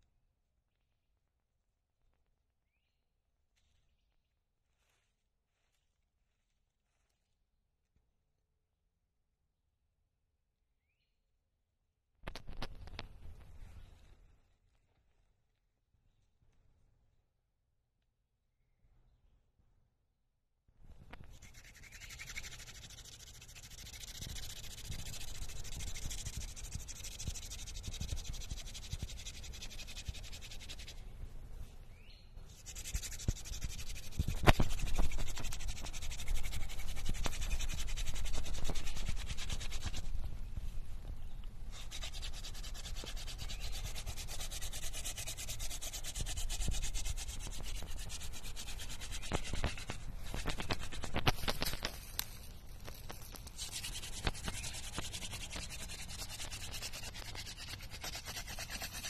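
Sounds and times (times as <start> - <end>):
spindle rubbing on wooden board: 32.6 - 40.1, 41.8 - 51.7, 53.6 - 59.0.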